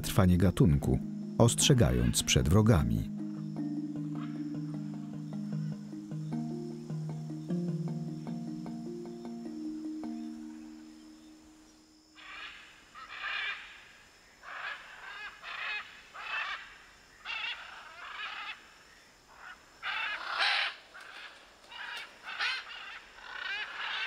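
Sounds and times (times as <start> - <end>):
macaws squawking: 0.0 - 9.3, 19.4 - 24.0.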